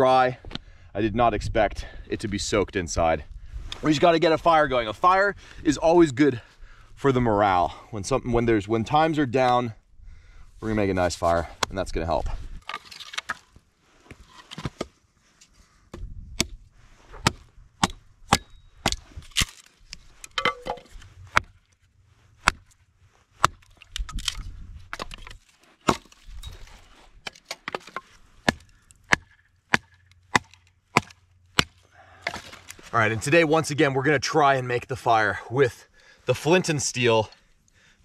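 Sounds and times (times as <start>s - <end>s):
hatchet chopping wood: 15.9s - 16.6s, 17.2s - 19.5s, 21.3s - 21.6s, 22.4s - 22.7s, 23.4s - 25.2s, 25.8s - 26.2s, 27.2s - 32.6s.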